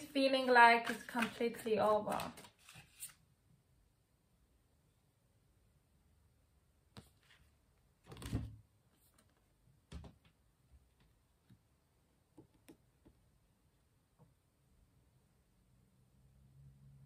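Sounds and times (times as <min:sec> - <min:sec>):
cards clicking: 0:00.8 - 0:03.1.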